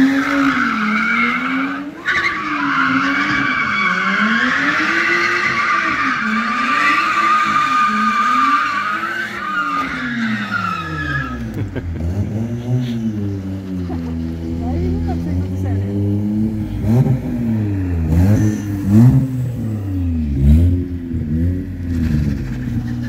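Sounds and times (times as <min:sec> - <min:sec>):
car engine revving: 0:00.0 - 0:23.0
tyres squealing: 0:05.5 - 0:11.5.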